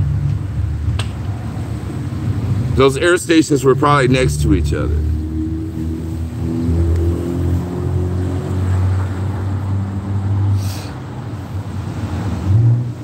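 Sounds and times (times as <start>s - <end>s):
vehicle engine rumbling: 0.0s - 13.0s
brief hiss: 10.6s - 11.0s.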